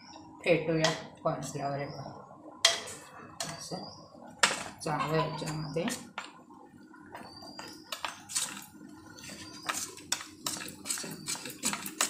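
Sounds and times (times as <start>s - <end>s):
metal spoon scraping bowl: 7.5s - 12.0s.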